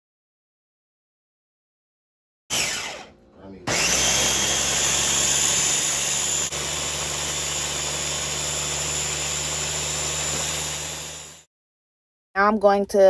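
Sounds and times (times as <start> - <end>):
blender motor running: 2.5 - 11.5.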